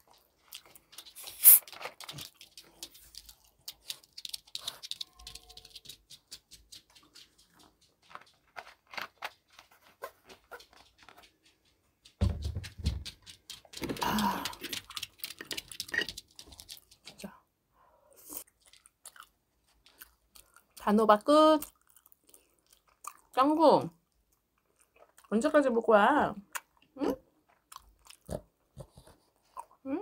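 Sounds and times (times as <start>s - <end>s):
thumps and scuffling: 6.4s - 14.8s
plastic bottle crackling: 13.7s - 17.0s.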